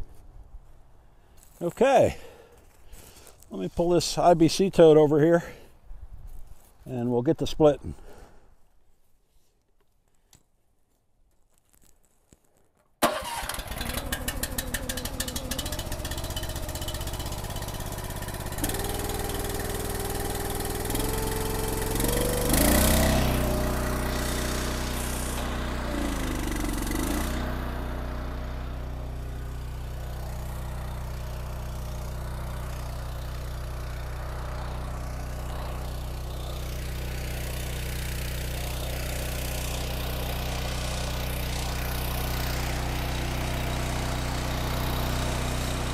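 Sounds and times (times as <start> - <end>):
log splitter engine running: 13.0 - 45.9.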